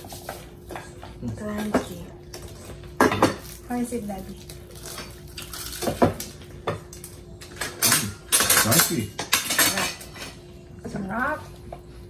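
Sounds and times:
plates and cutlery clinking: 0:00.0 - 0:03.6, 0:04.8 - 0:10.5.

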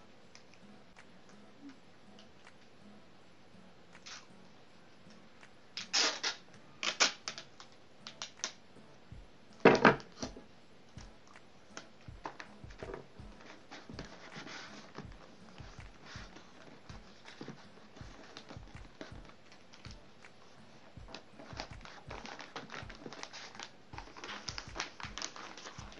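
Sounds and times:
sticky tape ripping: 0:04.0 - 0:04.3, 0:05.8 - 0:07.5
thump on table: 0:09.7 - 0:10.0
wrapping paper crinkling: 0:13.4 - 0:25.9.

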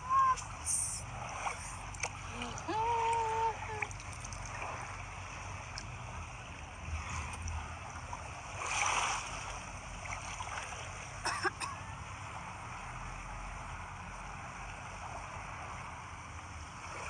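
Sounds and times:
seawater sloshing around legs: 0:00.0 - 0:11.2.

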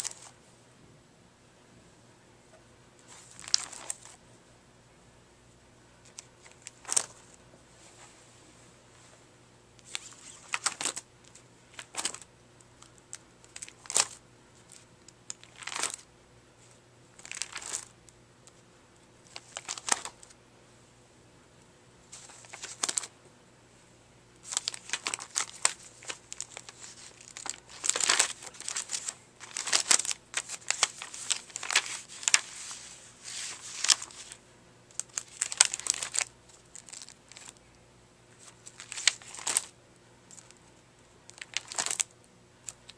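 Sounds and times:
plastic sleeve pages crinkling: 0:00.0 - 0:00.3, 0:03.1 - 0:04.2, 0:06.0 - 0:07.4, 0:09.8 - 0:17.9, 0:19.2 - 0:20.4, 0:22.1 - 0:23.1, 0:24.4 - 0:37.7, 0:38.4 - 0:39.7, 0:40.3 - 0:40.7, 0:41.3 - 0:42.9.

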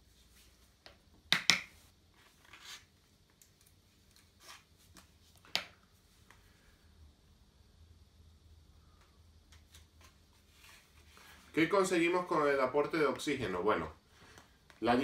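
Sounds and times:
soft rubs and scrapes: 0:09.7 - 0:11.6.

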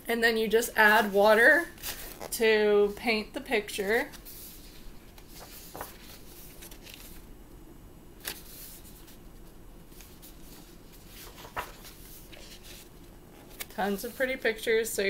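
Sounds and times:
paper pages turning: 0:01.7 - 0:02.4, 0:03.8 - 0:07.3, 0:08.2 - 0:14.6
sharp paper rustles: 0:03.9 - 0:07.2, 0:09.9 - 0:14.4.

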